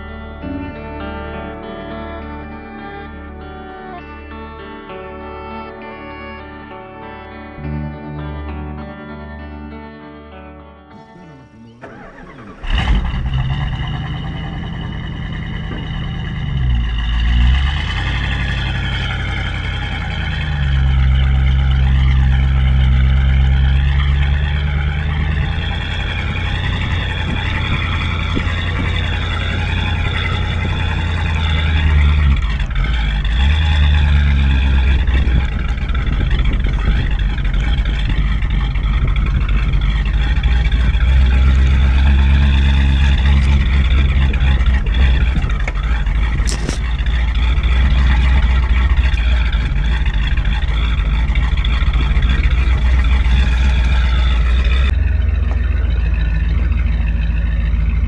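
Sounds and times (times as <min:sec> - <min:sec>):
motorhome engine driving: 0:11.0 - 0:58.0
road noise: 0:11.0 - 0:58.0
wind noise: 0:11.2 - 0:57.1.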